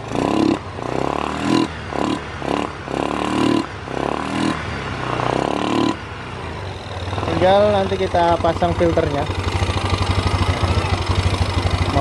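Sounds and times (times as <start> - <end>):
motorcycle engine idling: 5.0 - 12.0.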